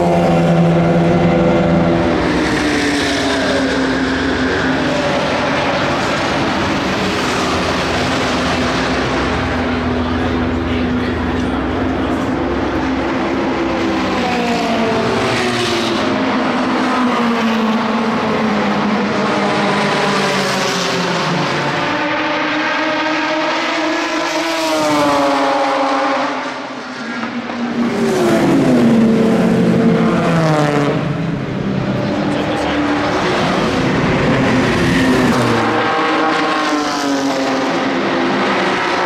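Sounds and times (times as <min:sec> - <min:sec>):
race cars passing: 0:00.0 - 0:39.0.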